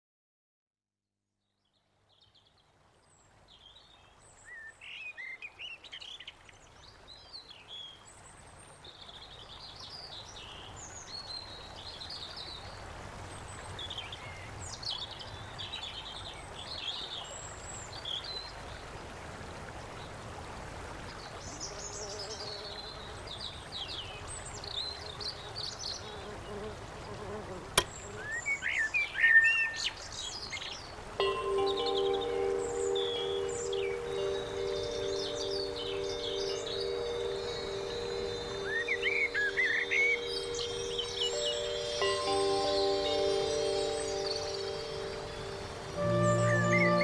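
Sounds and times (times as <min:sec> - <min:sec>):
outdoor noise: 0:10.2 - 0:47.0
songbirds chirping and trilling: 0:21.2 - 0:47.0
low steady tone: 0:31.2 - 0:47.0.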